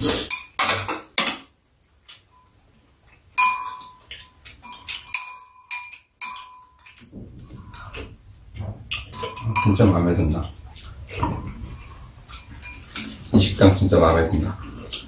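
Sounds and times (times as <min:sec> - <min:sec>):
spoons clinking on ceramic bowls: 0:00.1 - 0:01.0, 0:03.4 - 0:08.2, 0:08.9 - 0:13.8.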